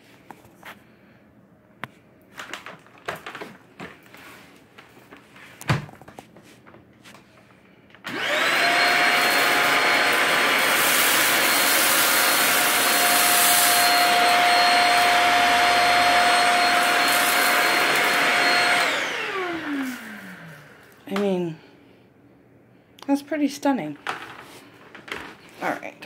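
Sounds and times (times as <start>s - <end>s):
stick vacuum motor whining: 8.0s - 21.3s.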